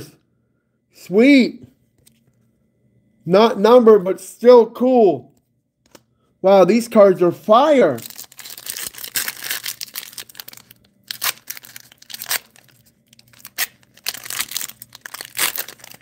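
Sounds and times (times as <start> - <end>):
foil wrapper tearing and crinkling: 8.0 - 16.0.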